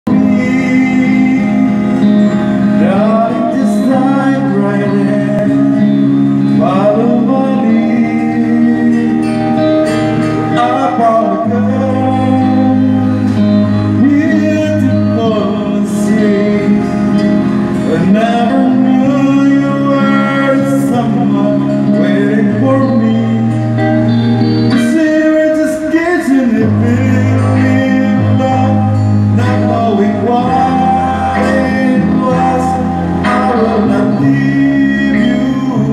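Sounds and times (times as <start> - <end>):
acoustic guitar: 0.0 - 35.9
man singing: 0.0 - 35.9.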